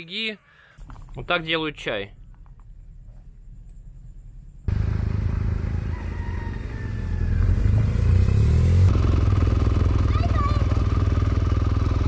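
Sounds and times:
motorcycle engine running: 4.6s - 12.0s.

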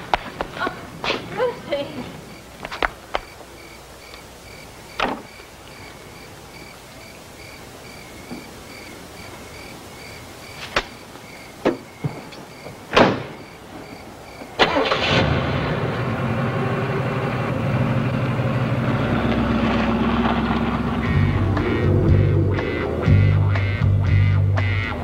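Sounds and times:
crickets chirping: 0.0s - 15.4s, 16.0s - 25.0s
car door clicks: 12.9s - 13.4s
car door slam: 12.9s - 13.4s
car engine starting and running: 14.6s - 23.5s.

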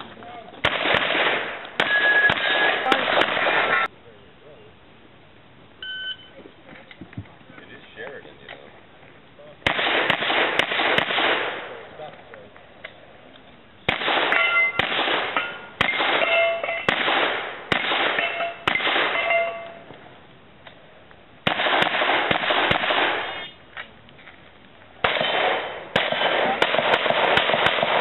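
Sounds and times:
pistol shots echoing: 0.6s - 3.9s, 9.6s - 11.8s, 13.8s - 19.7s, 21.4s - 23.5s, 25.0s - 28.0s
metallic ringing: 14.3s - 16.9s, 18.2s - 20.0s.

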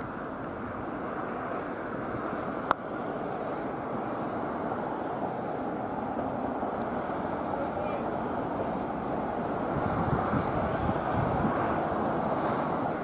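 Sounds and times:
wind noise on microphone: 8.2s - 13.0s.

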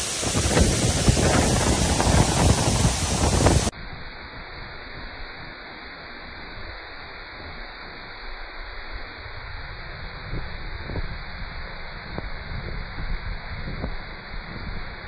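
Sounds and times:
waterfall rushing: 0.0s - 3.7s
wind rumbling on microphone: 0.0s - 5.5s, 8.8s - 15.0s.

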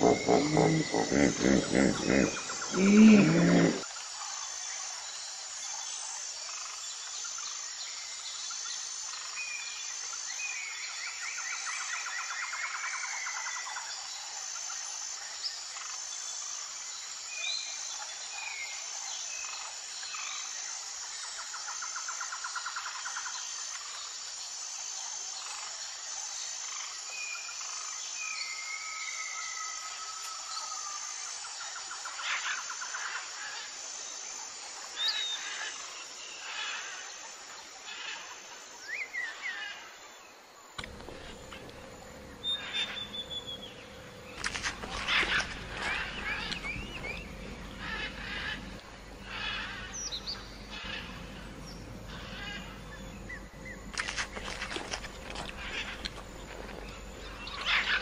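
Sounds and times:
birds chirping and trilling: 0.0s - 3.8s, 40.8s - 58.0s
insect chirring: 0.0s - 3.9s, 40.8s - 58.0s.

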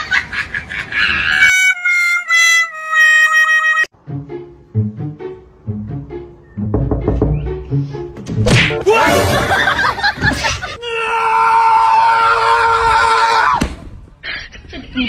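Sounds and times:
slap: 8.3s - 8.8s, 13.6s - 13.9s
cartoonish sound effects: 8.5s - 9.6s.

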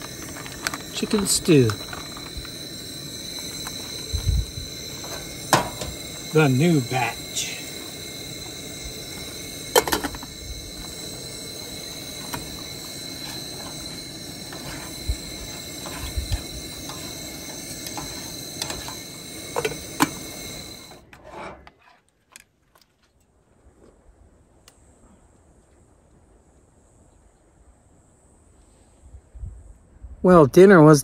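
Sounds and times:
camp stove burner hissing: 0.0s - 21.7s.

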